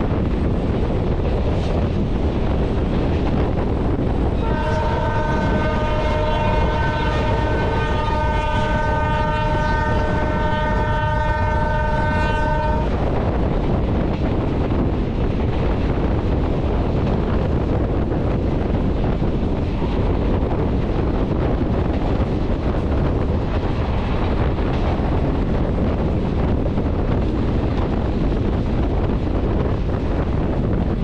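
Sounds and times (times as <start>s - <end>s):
train rumble: 0.0s - 31.0s
wind rushing over microphone: 0.0s - 31.0s.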